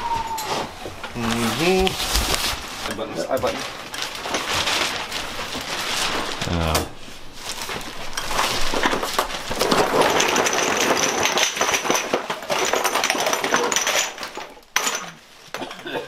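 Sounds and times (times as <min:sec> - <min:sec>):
jars and bottles clattering: 0:02.8 - 0:06.4, 0:07.5 - 0:16.0.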